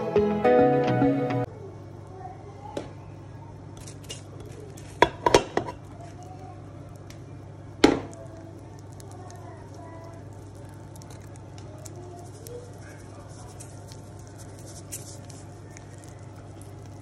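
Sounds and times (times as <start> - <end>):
steady low hum: 1.4 - 17.0.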